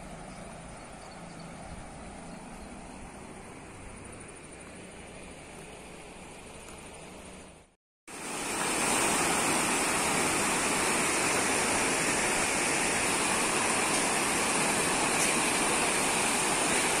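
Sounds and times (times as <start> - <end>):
river water over rocks: 8.1 - 17.0.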